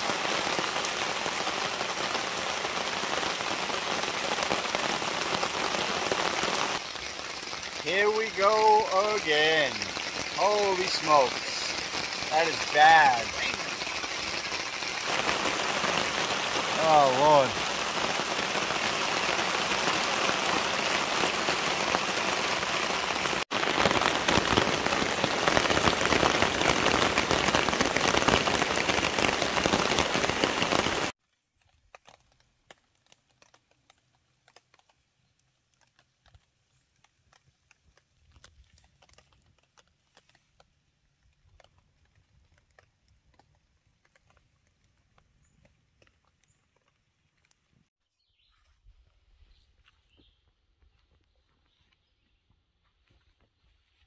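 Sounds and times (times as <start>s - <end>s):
heavy rain pouring: 0.0s - 31.2s.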